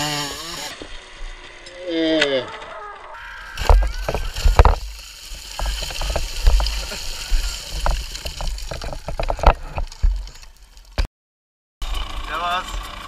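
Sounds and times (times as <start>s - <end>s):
footsteps on frozen gravel: 3.6s - 10.7s.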